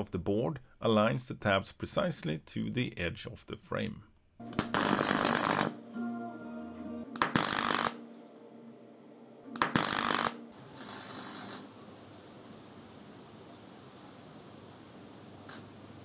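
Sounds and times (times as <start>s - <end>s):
welding arc crackling: 4.5s - 5.8s, 7.2s - 8.0s, 9.6s - 11.8s, 15.4s - 16.0s.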